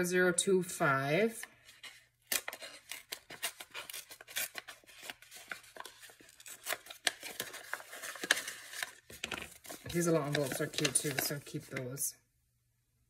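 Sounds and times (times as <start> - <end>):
packaging crinkling and rustling: 1.8 - 11.9.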